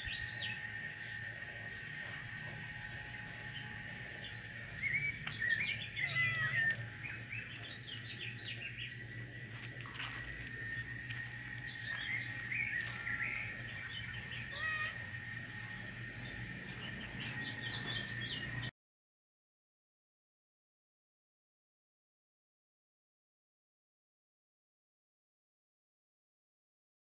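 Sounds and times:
small birds chirping: 0:00.0 - 0:18.7.

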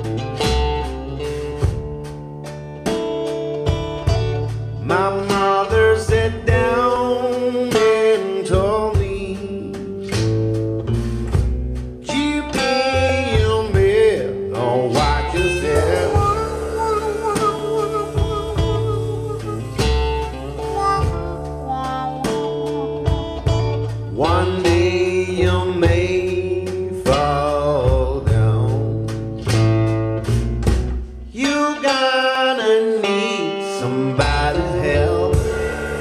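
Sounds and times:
blues guitar through loudspeakers: 0:00.0 - 0:36.0
person singing: 0:04.8 - 0:09.9, 0:12.1 - 0:29.1, 0:31.4 - 0:36.0.

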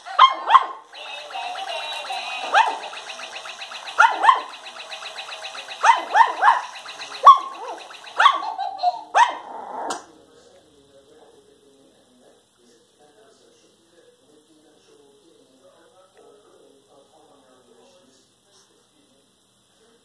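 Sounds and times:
toy motor ticking: 0:00.8 - 0:09.1
puppies yapping: 0:02.5 - 0:02.8, 0:04.0 - 0:04.5, 0:05.8 - 0:10.0.

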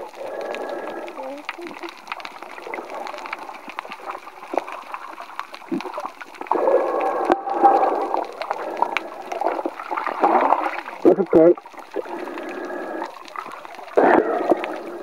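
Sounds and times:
muffled underwater gurgling: 0:00.0 - 0:15.0.

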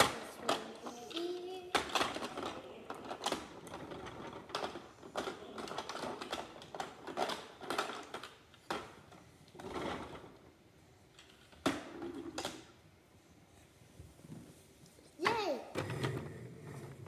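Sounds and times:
plastic toy cars clattering: 0:00.0 - 0:12.9.

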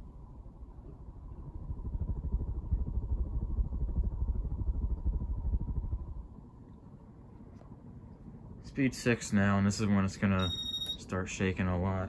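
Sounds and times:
fan wind buffeting microphone: 0:00.0 - 0:10.4, 0:11.0 - 0:12.0
faint steady hum: 0:00.0 - 0:12.0.

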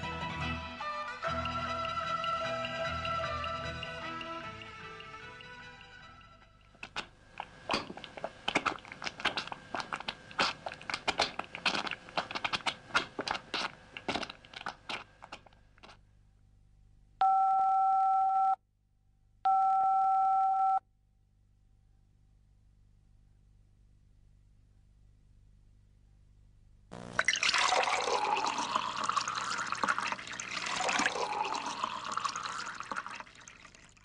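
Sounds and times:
crackling clicks and pops: 0:06.7 - 0:16.0.

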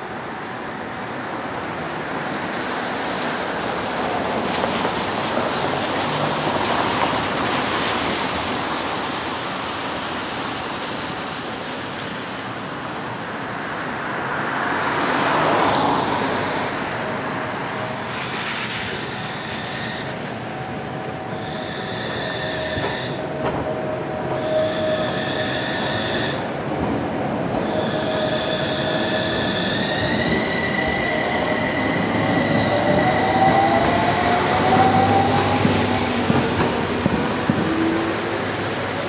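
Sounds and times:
cars passing on wet road: 0:00.0 - 0:39.0
tram rolling past: 0:00.0 - 0:39.0
high-pitched squealing tones: 0:17.8 - 0:23.4, 0:24.2 - 0:26.5, 0:27.6 - 0:36.0.

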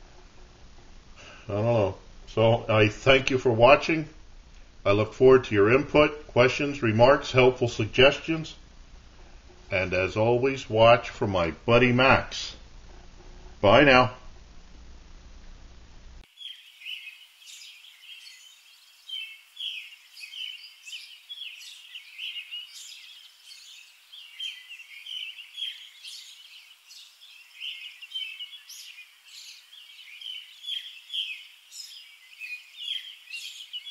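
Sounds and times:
birds chirping and singing: 0:16.3 - 0:33.9.

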